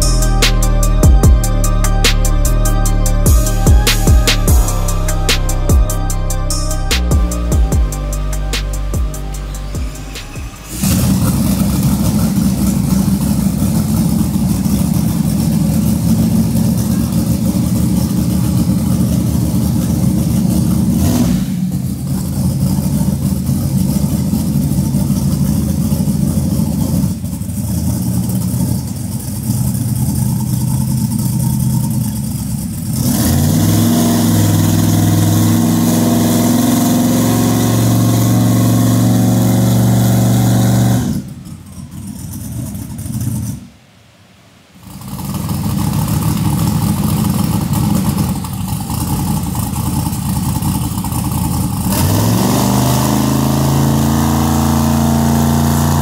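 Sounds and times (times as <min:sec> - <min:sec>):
car engine on dyno: 0:00.0 - 0:56.0.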